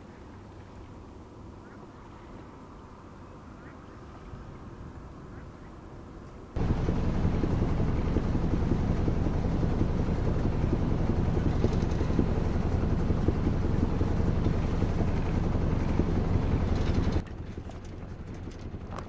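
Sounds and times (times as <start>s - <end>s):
outboard motor running: 6.6s - 19.0s.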